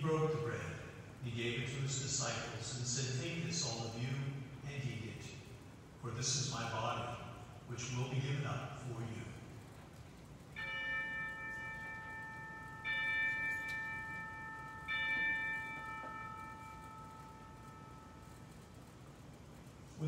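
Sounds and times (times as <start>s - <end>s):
altar bells ringing: 10.5s - 20.0s.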